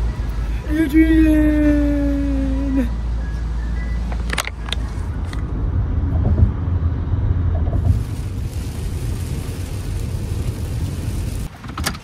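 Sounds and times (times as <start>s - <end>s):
car cabin road rumble: 0.0s - 12.0s
hiss: 7.8s - 11.5s.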